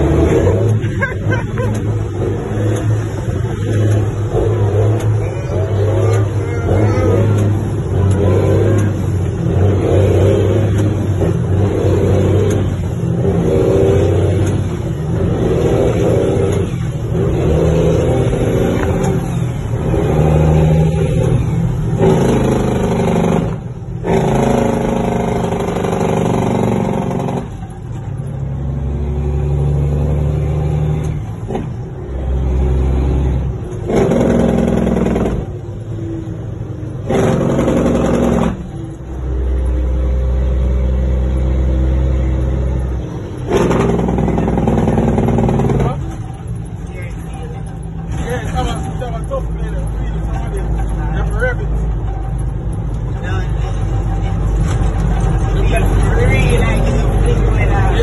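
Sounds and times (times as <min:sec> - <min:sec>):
diesel truck engine under load: 0:00.0 - 0:58.0.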